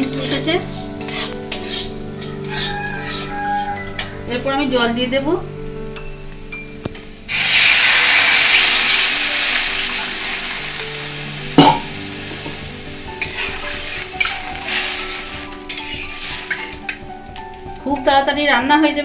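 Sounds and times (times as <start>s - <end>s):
metal spatula scraping wok: 0.0s - 4.5s, 11.6s - 17.5s
water hissing in hot pan: 0.0s - 19.0s
metal clank: 11.6s - 12.6s.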